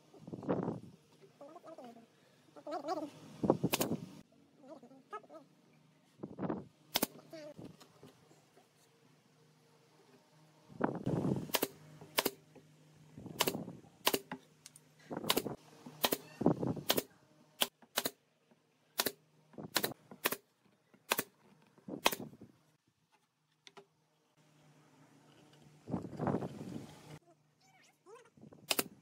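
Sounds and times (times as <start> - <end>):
pneumatic nailer firing: 3.6 - 4.0, 6.9 - 7.2, 11.4 - 12.4, 13.4 - 14.4, 15.2 - 18.2, 19.0 - 20.4, 21.1 - 21.4, 22.0 - 22.4, 28.7 - 29.0.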